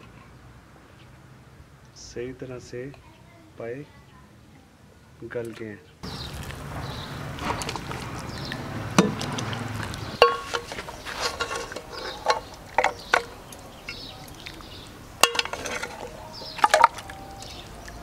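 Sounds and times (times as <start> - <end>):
metal ladle clinking on glass: 10.2 - 13.3, 15.2 - 17.7.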